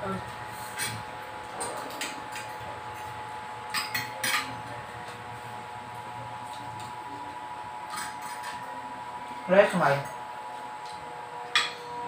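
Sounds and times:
cutlery scraping plates: 0:00.6 - 0:04.6, 0:07.9 - 0:08.7
cutlery clinking on plates: 0:03.7 - 0:04.6, 0:07.9 - 0:08.7, 0:11.5 - 0:12.0.

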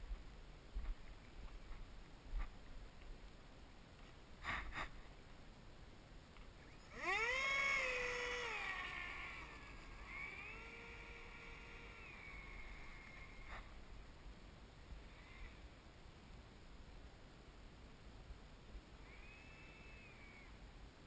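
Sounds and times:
small electric motor whine: 0:06.6 - 0:13.8, 0:15.0 - 0:15.7, 0:19.0 - 0:20.6.

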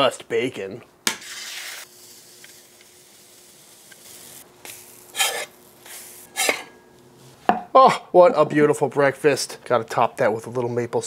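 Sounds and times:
scraping on a griddle: 0:01.2 - 0:02.2, 0:04.2 - 0:07.3
batter sizzling on a griddle: 0:01.2 - 0:06.7.

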